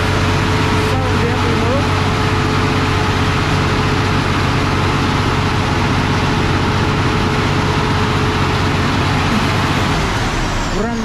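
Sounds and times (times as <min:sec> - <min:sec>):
diesel truck engine running: 0:00.0 - 0:11.0
steady whining tone: 0:00.0 - 0:11.0.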